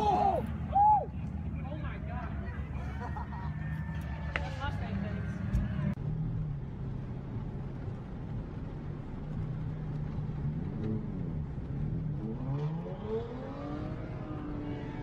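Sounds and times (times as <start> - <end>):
car engine revving: 10.3 - 15.0.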